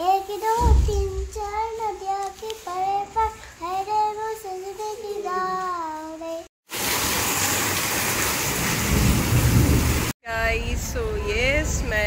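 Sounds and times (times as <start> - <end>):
child singing: 0.0 - 6.5.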